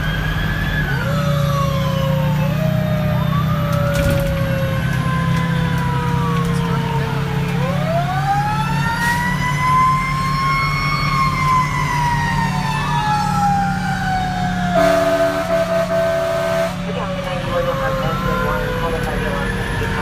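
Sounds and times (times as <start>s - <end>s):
diesel engine drone: 0.0s - 20.0s
fire engine siren: 0.0s - 20.0s
air horn blast: 14.8s - 16.8s.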